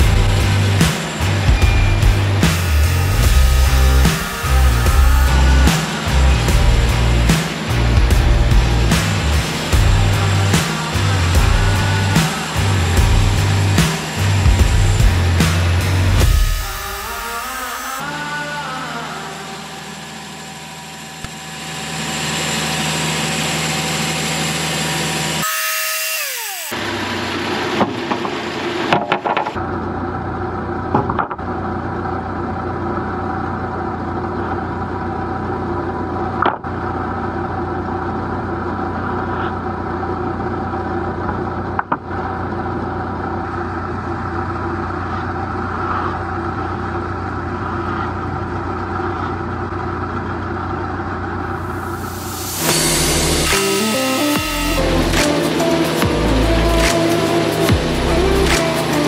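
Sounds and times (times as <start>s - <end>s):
band saw blade cutting wood: 0.0s - 18.1s, 19.9s - 29.6s, 51.6s - 59.0s
sawmill engine running: 0.0s - 18.4s, 19.0s - 59.0s
boards being handled: 27.8s - 29.6s.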